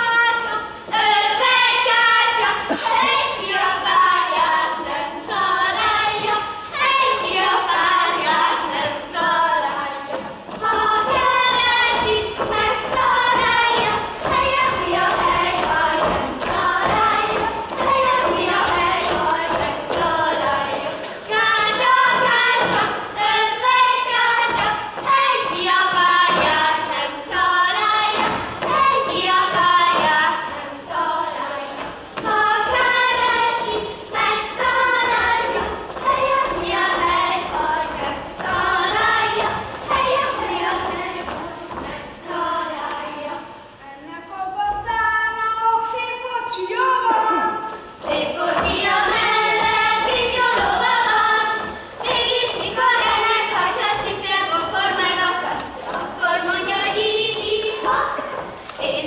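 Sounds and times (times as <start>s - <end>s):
children singing: 0.0s - 43.8s, 44.8s - 59.0s
feet stamping on stage floor: 7.6s - 42.9s, 47.1s - 59.0s.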